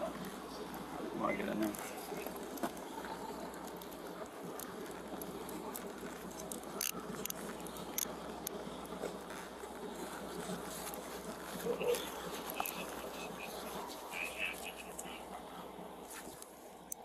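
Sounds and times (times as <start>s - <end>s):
clothing rustling on camera: 8.9s - 14.9s, 16.0s - 16.5s.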